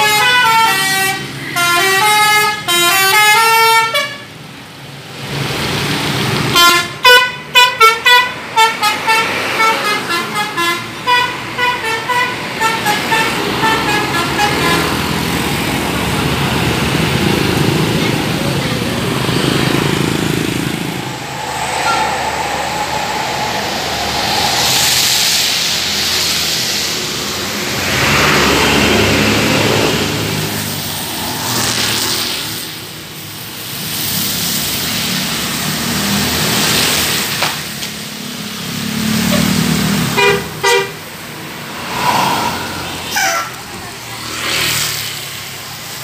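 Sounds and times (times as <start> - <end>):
bus musical horn: 0.0 - 4.3, 6.5 - 15.1, 40.2 - 41.0
buses and traffic: 0.0 - 46.0.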